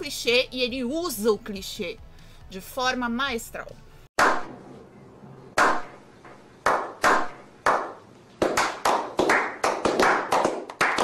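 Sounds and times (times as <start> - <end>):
people slow clapping: 6.6 - 11.0.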